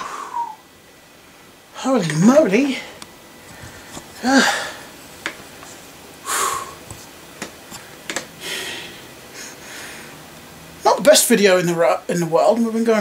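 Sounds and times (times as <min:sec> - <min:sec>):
man breathing hard: 0:02.8 - 0:04.9, 0:06.2 - 0:06.9, 0:07.8 - 0:10.2.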